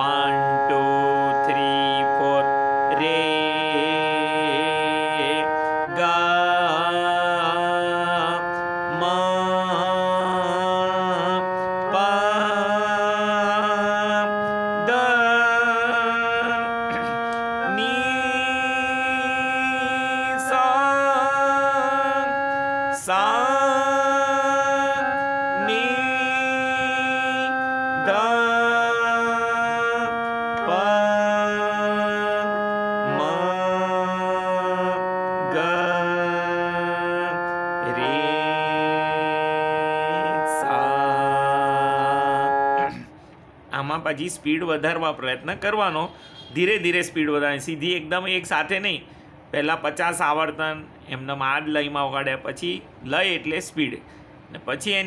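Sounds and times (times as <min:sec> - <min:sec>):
electronic keyboard playing scale: 0:00.0 - 0:43.0.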